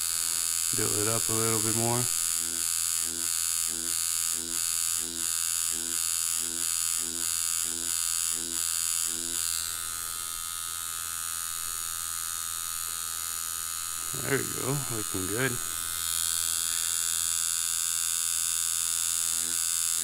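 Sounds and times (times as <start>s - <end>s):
tattoo machine buzzing: 0.0s - 20.0s.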